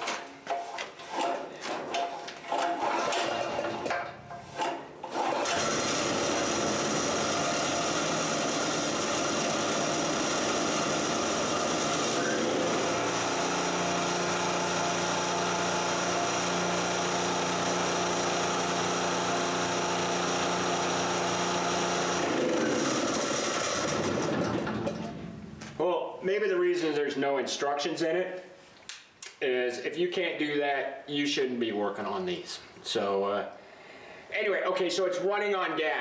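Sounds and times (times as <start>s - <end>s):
generator engine running: 5.2s - 25.6s.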